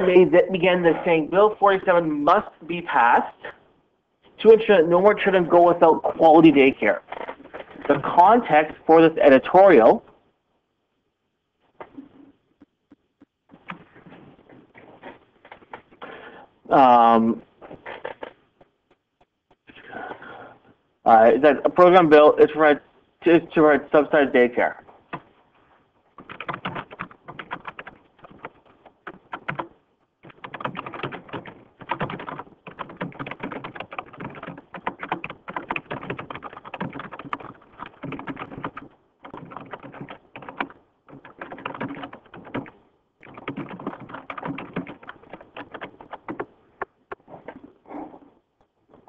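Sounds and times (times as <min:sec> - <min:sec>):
computer keyboard typing: 0:26.2 - 0:47.3.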